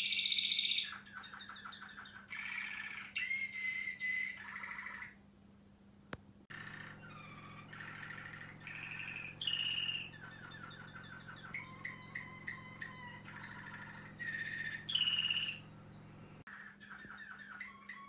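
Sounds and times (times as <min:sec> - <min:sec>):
canary singing trills: 0:00.0 - 0:05.2, 0:06.5 - 0:18.0
steady low hum: 0:05.2 - 0:16.5.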